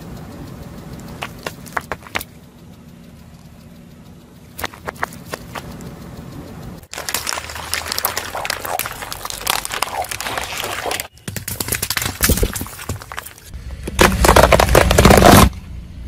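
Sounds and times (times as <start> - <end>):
low engine hum: 0.0 - 10.3, 12.7 - 16.0
car tyre crushing objects: 1.2 - 2.3, 4.6 - 5.7, 6.9 - 15.6
crackling and crinkling: 4.6 - 6.0, 6.8 - 15.6.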